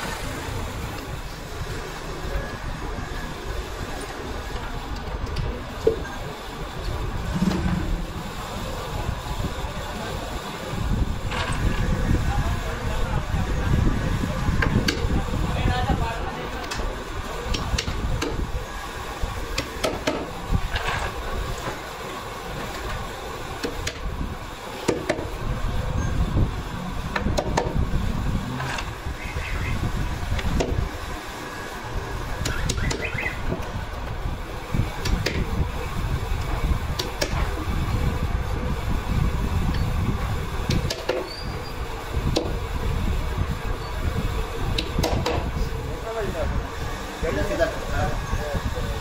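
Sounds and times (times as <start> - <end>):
steady low rumble: 0.0 - 19.5, 23.3 - 40.7.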